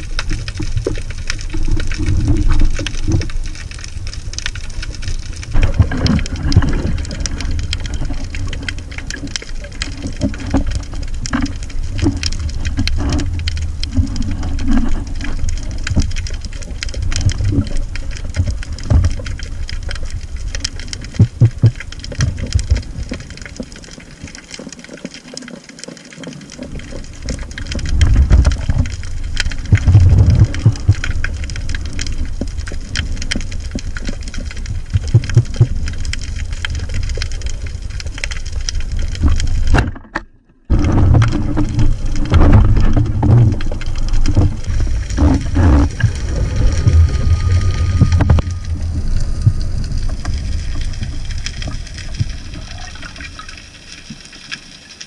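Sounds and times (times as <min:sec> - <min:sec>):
fine crackling clicks: 0:00.0 - 0:55.0
underwater rumble of moving water: 0:00.0 - 0:55.0
underwater thumps: 0:39.7 - 0:47.0.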